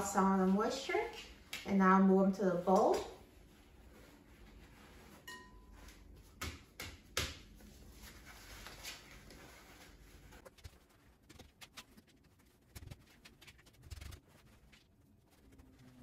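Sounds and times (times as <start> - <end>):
paper towel crinkling: 2.8 - 6.4, 7.5 - 16.0.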